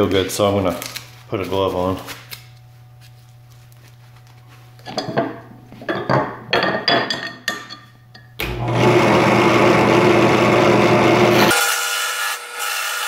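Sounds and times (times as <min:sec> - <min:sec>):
drill press motor humming: 0:08.4 - 0:11.5
chisel cutting spinning wood: 0:08.4 - 0:13.0.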